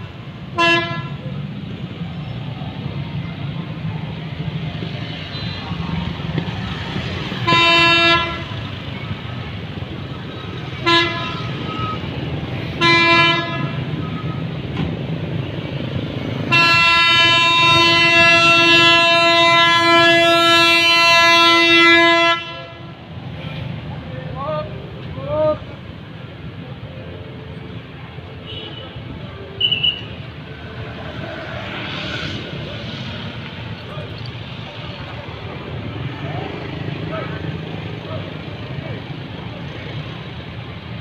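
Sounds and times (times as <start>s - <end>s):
motorbike engines: 0.0s - 41.0s
street traffic rumble: 0.0s - 41.0s
train horn blasts: 0.5s - 1.2s, 7.4s - 8.7s, 10.8s - 12.0s, 12.8s - 14.4s, 16.4s - 22.9s.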